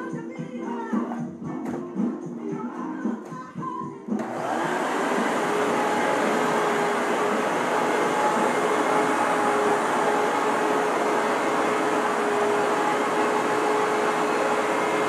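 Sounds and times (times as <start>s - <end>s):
vacuum cleaner running: 4.2s - 15.0s.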